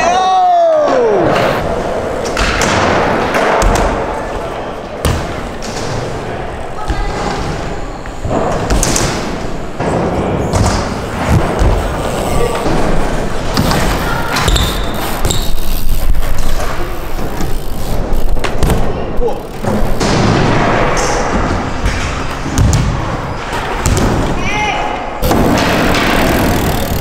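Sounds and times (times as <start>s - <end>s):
tyres rolling on ramps: 0.8s - 24.3s, 25.2s - 27.0s
bike landing thuds: 8.3s - 12.0s, 25.2s - 27.0s.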